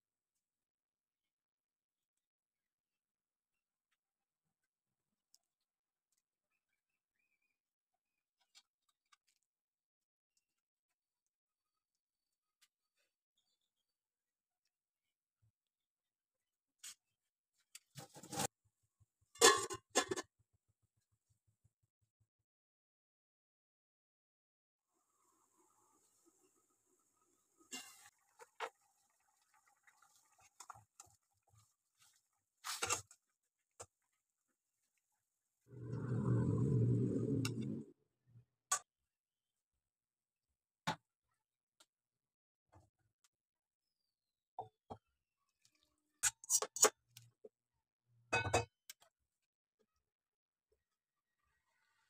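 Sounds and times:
metal pot lid clattering: 0:19.4 - 0:20.2.

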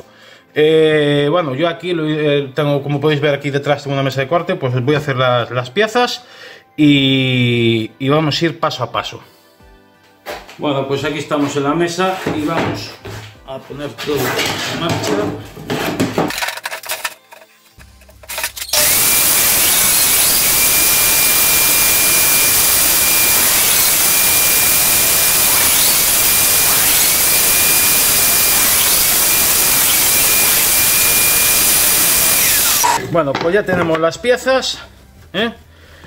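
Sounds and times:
boards knocking: 0:14.2 - 0:16.3
table saw whining: 0:18.3 - 0:33.0.

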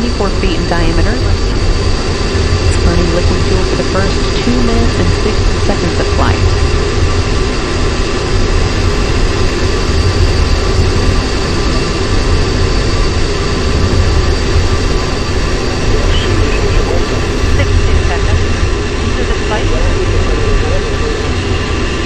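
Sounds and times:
thin steady tones: 0:00.0 - 0:08.2
rocket engines rumbling: 0:00.0 - 0:22.0.

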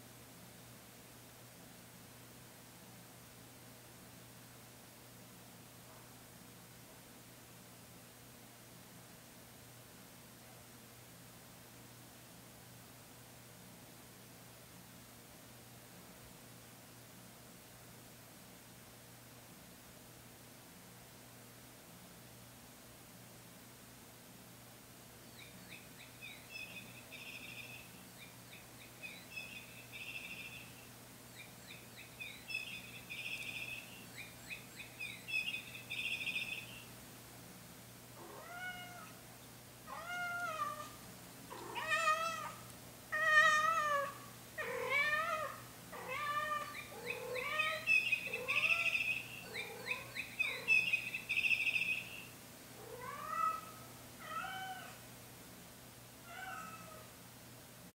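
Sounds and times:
songbird chirping: 0:25.2 - 0:37.0, 0:46.3 - 0:52.4
cat meowing: 0:38.2 - 0:39.2, 0:39.9 - 0:50.8, 0:52.8 - 0:55.0, 0:56.3 - 0:57.1.

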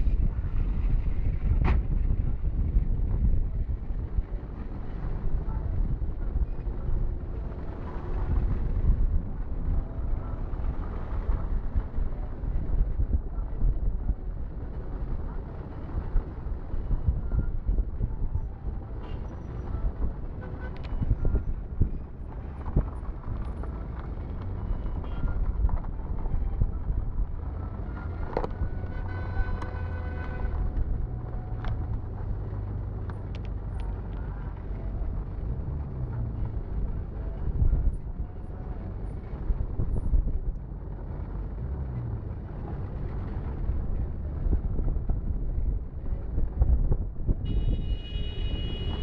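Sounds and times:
road traffic rumble: 0:00.0 - 0:49.0
vehicle horn: 0:28.5 - 0:30.8, 0:47.4 - 0:49.0.

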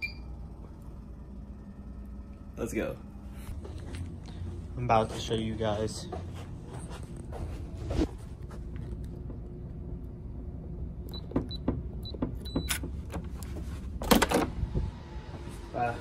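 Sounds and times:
keypad lock beeping: 0:11.1 - 0:12.8.

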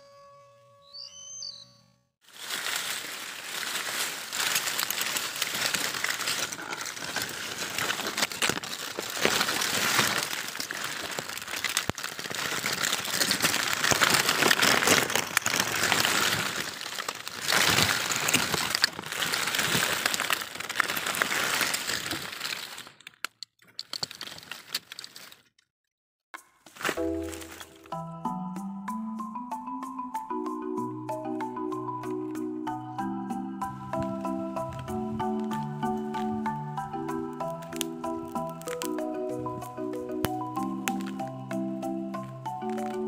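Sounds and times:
dry leaves rustling and crackling: 0:02.2 - 0:25.5, 0:26.7 - 0:28.0, 0:33.6 - 0:43.0.

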